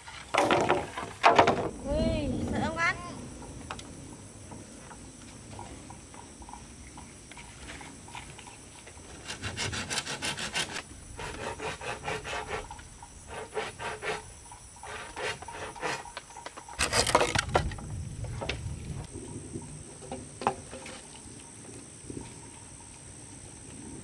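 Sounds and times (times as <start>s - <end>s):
rasp on wood: 9.2s - 16.2s.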